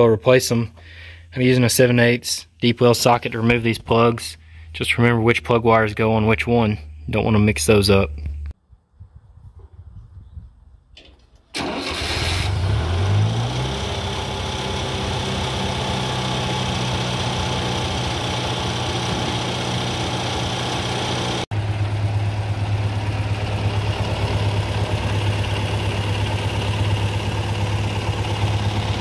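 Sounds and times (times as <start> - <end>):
tractor engine idling: 11.1 - 29.0.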